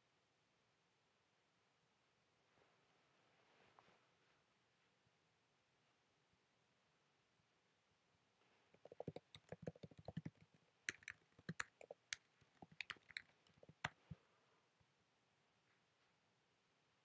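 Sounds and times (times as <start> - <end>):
keyboard key clicks: 8.8 - 14.2.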